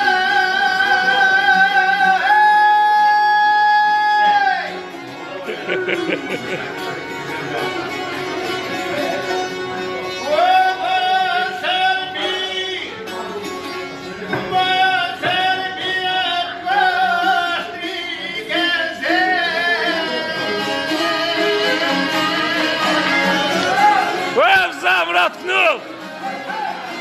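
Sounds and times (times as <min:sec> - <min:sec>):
man singing with vibrato: 0:00.0 - 0:04.8, 0:09.2 - 0:27.0
plucked lutes strumming: 0:00.0 - 0:27.0.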